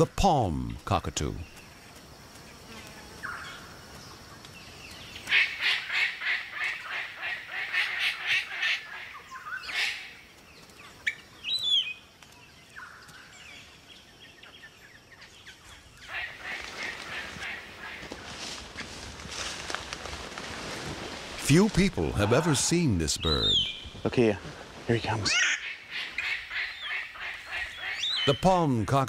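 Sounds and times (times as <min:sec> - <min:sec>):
cockatoos calling harshly: 0:05.2 - 0:10.2, 0:16.0 - 0:18.5, 0:21.3 - 0:28.4.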